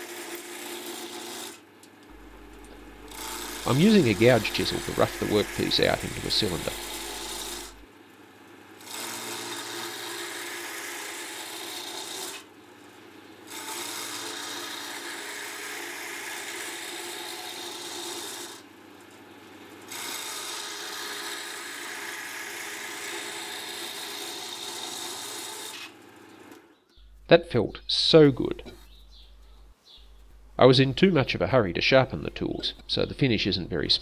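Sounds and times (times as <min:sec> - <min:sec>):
chisel scraping spinning wood: 0:00.1 - 0:07.9, 0:08.8 - 0:12.5, 0:13.5 - 0:18.6, 0:19.9 - 0:26.0
lathe motor hum: 0:02.1 - 0:07.9, 0:08.8 - 0:12.4, 0:13.5 - 0:18.6, 0:19.9 - 0:25.5.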